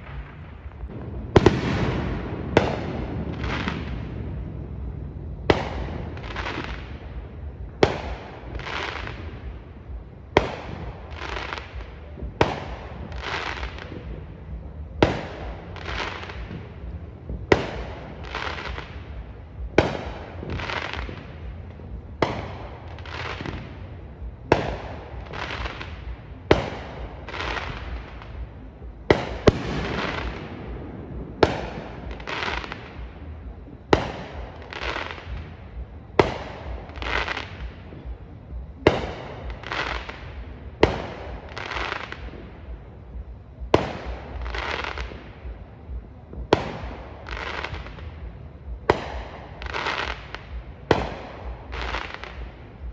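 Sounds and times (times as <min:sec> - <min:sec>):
firework bangs: 0:00.0 - 0:52.9.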